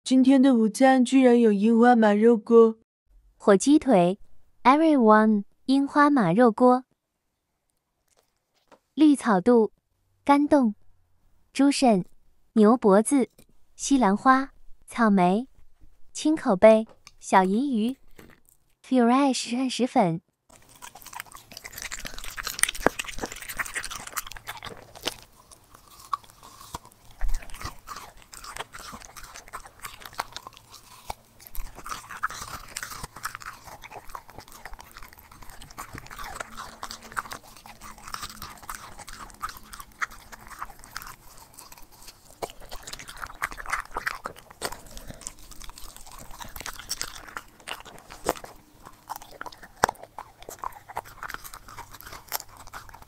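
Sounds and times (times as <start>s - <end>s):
dog chewing and crunching food: 15.5s - 18.8s, 20.5s - 53.0s.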